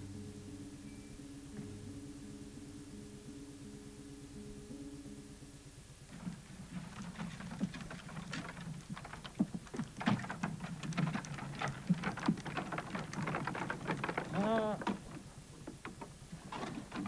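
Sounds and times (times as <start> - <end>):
horse cart clattering: 6.1 - 17.0.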